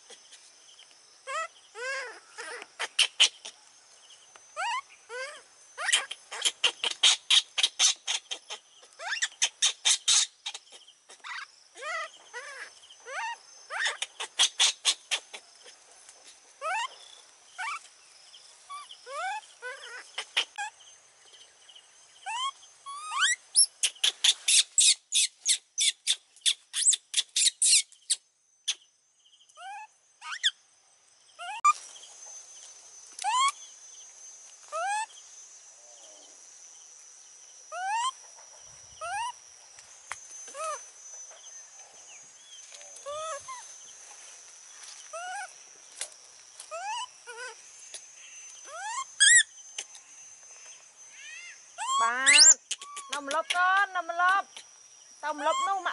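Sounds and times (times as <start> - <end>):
high insect drone: 0.0 - 55.9
animal squeaks: 1.3 - 3.5, 4.6 - 15.4, 16.6 - 17.0, 17.6 - 17.8, 18.7 - 20.7, 22.2 - 28.8, 29.6 - 30.6, 31.4 - 31.8, 33.2 - 33.6, 37.7 - 38.2, 39.0 - 39.4, 40.5 - 40.8, 43.0 - 43.6, 45.1 - 45.5, 46.7 - 47.6, 48.6 - 49.5, 51.1 - 53.7, 55.3 - 55.9
fast clicking trills: 52.0 - 54.6.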